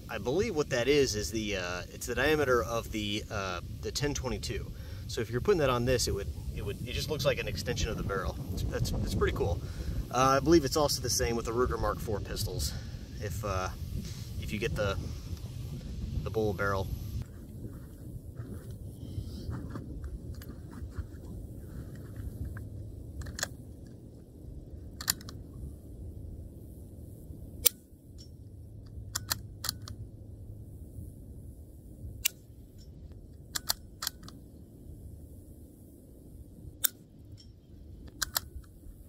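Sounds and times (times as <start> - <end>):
wind noise on microphone: 0.0 - 39.0
rifle bolt clicks: 23.2 - 23.6, 25.0 - 25.4, 29.1 - 30.0, 33.5 - 34.4, 38.1 - 38.8.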